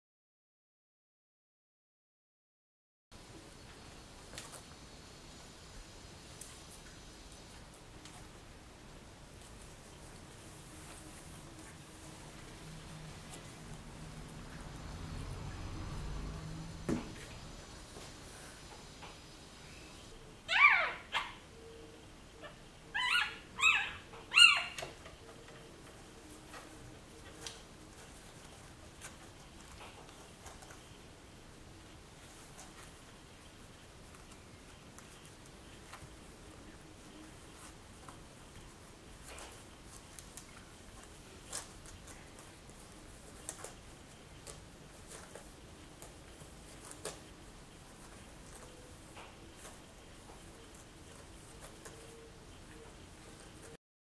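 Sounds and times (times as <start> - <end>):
faint rustles and soft clicks: 3.4 - 4.8, 6.3 - 15.5, 22.4 - 53.8
puppy squealing: 20.5 - 21.5, 22.4 - 24.9.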